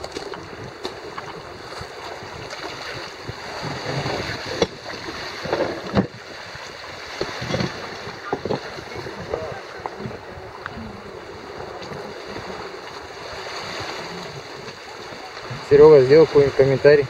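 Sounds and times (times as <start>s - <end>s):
sea water washing: 0.0s - 17.0s
wind buffeting microphone: 0.0s - 17.0s.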